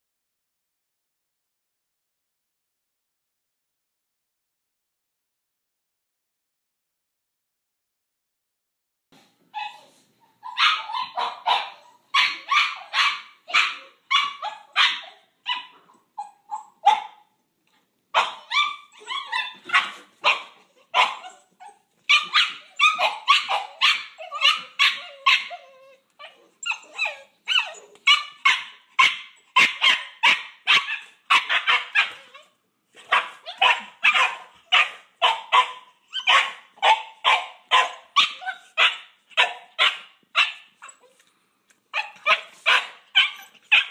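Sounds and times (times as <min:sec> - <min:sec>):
puppies barking: 0:10.4 - 0:17.2, 0:18.2 - 0:41.2, 0:42.0 - 0:43.9.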